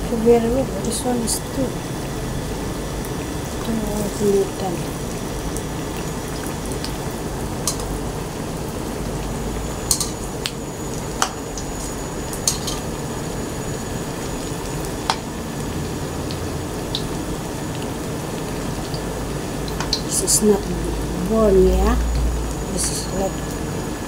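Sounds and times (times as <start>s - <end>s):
food deep-frying in oil: 0.0s - 24.0s
metal spatula clinking on pan: 12.4s - 12.8s.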